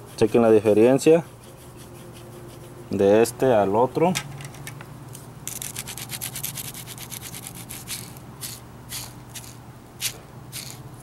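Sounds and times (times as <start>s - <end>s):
ball bearing rasping: 5.5s - 10.9s.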